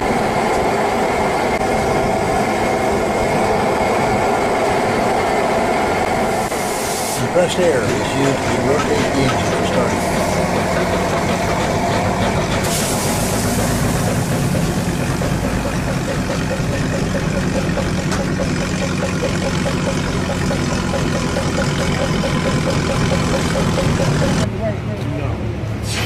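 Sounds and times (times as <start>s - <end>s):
stationary engine running steadily: 0.0s - 26.0s
loud hiss of compressed air: 6.4s - 7.3s, 12.6s - 14.4s.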